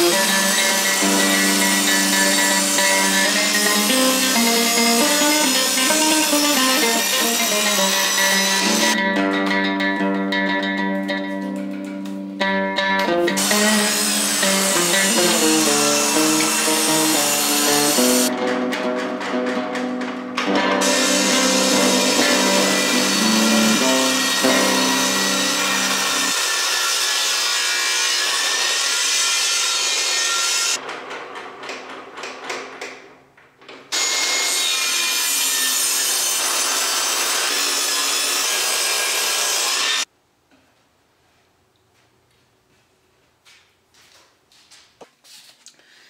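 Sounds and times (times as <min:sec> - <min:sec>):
table saw cutting wood: 0:00.0 - 0:09.0, 0:13.4 - 0:18.4, 0:20.4 - 0:30.8, 0:33.9 - 0:40.1.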